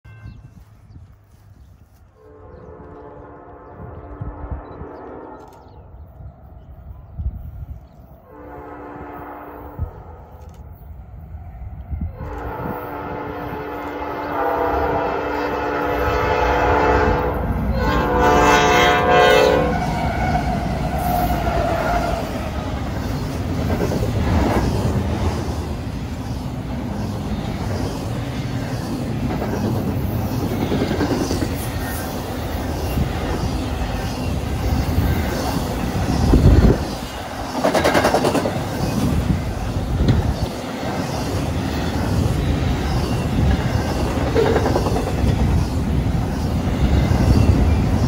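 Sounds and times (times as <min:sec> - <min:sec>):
locomotive air horn: 0:02.2 - 0:05.6, 0:08.3 - 0:10.4, 0:12.1 - 0:22.1
freight train wheels clattering: 0:20.0 - 0:48.0.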